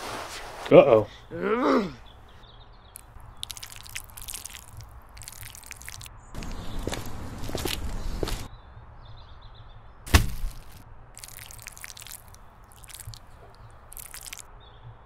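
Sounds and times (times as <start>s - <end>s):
rustling and scraping: 0.0s - 0.8s
sharp thud: 10.1s - 10.8s.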